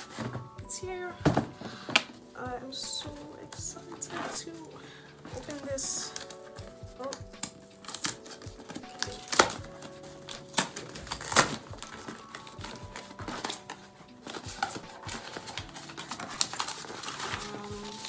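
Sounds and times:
cardboard box being torn open: 0:07.4 - 0:18.0.

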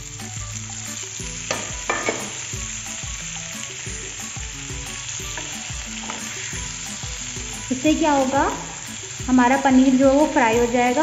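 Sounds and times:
food sizzling in oil: 0:00.0 - 0:11.0
sharp knocks in pan: 0:01.5 - 0:02.4.

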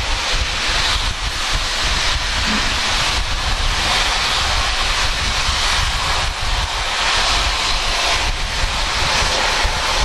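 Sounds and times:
low rumble: 0:00.0 - 0:06.7
steam locomotive hissing: 0:00.0 - 0:10.0.

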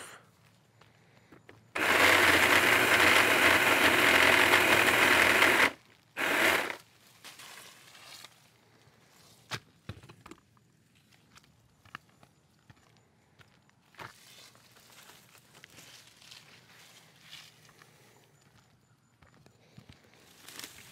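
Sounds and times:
pole saw cutting tree limb: 0:01.8 - 0:06.8
branch falling with leaves rustling: 0:07.0 - 0:08.4.

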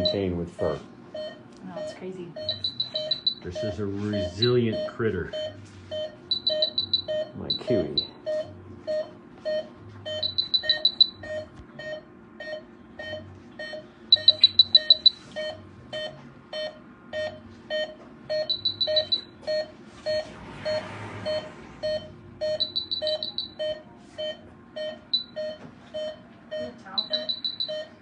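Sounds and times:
patient monitor beeping: 0:00.0 - 0:28.0
quick high-pitched beeps: 0:02.4 - 0:05.6, 0:06.3 - 0:08.5, 0:10.1 - 0:11.4, 0:13.1 - 0:16.2, 0:18.3 - 0:19.3, 0:20.1 - 0:25.5, 0:27.0 - 0:27.9.

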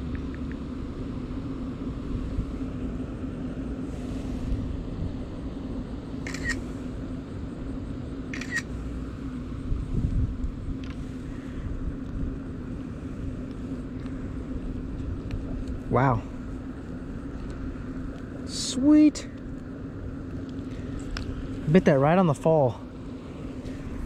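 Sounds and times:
steady low hum: 0:00.0 - 0:24.0
phone camera shutter: 0:06.2 - 0:06.7, 0:08.3 - 0:08.7.

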